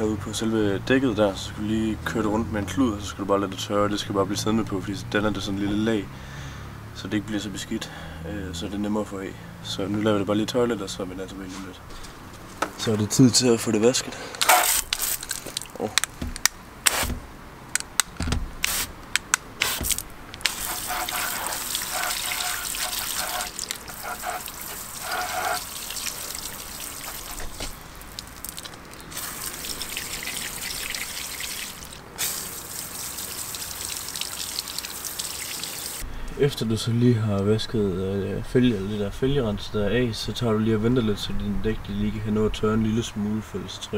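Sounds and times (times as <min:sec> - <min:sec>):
hose spray hissing and splattering: 0:14.4 - 0:15.9, 0:16.9 - 0:17.2, 0:18.6 - 0:18.9, 0:19.6 - 0:36.0
water dripping: 0:14.9 - 0:16.2, 0:19.9 - 0:36.0.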